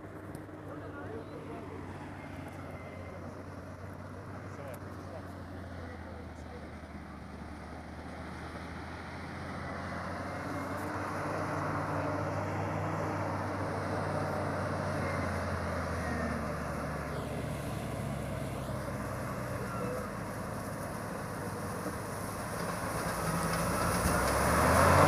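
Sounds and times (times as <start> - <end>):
heavy machine engine under load: 0.0 - 25.0.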